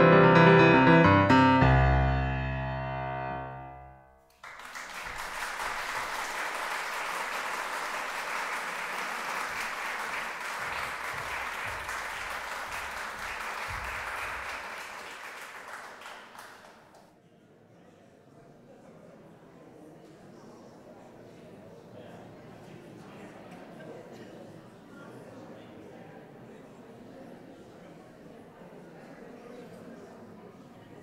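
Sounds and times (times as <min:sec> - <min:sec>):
piano chord ringing: 0:00.0 - 0:04.3
audience applauding: 0:04.3 - 0:17.0.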